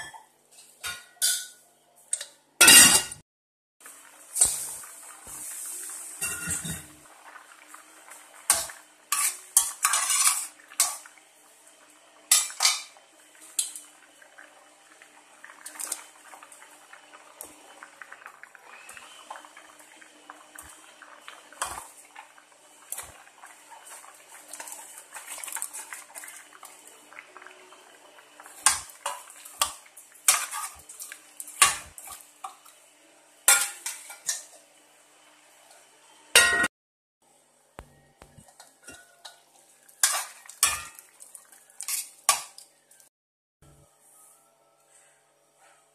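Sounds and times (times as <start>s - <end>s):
metal utensils clinking on pot: 0.8s - 3.2s, 6.2s - 6.9s, 8.5s - 11.1s, 12.3s - 13.0s, 28.6s - 32.2s, 38.4s - 42.7s.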